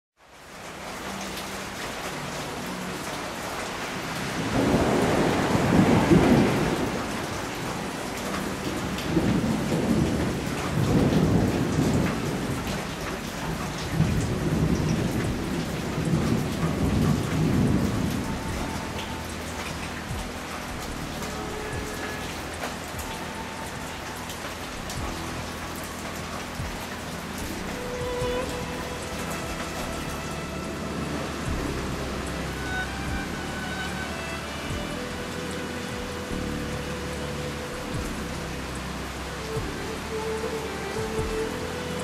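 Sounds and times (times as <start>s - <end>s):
heavy rain falling: 0.2s - 42.0s
thunder rumbling: 4.2s - 33.4s.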